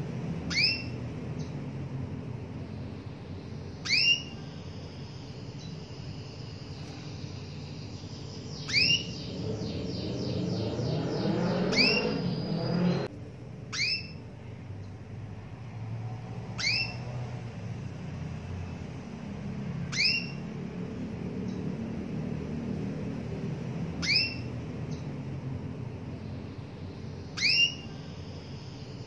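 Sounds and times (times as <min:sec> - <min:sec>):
canary call notes: 0:00.4 - 0:01.6, 0:03.7 - 0:13.0, 0:13.7 - 0:14.2, 0:16.5 - 0:17.2, 0:19.8 - 0:20.5, 0:24.0 - 0:25.1, 0:27.2 - 0:29.0.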